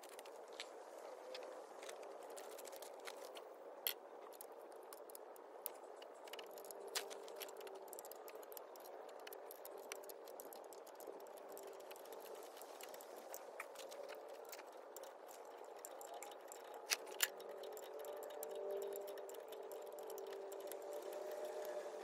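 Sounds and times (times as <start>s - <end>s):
clicks and rattles of metal parts: 12.7s - 21.9s.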